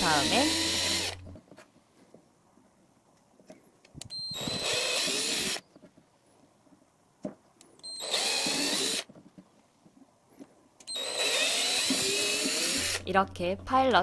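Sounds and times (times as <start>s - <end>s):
cordless drill drilling plastic: 0.0s - 1.4s, 4.2s - 5.6s, 7.8s - 9.1s, 10.9s - 13.1s.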